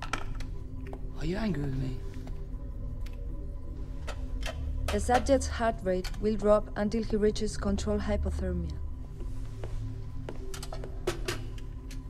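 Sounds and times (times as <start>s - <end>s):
low droning score: 0.0s - 12.0s.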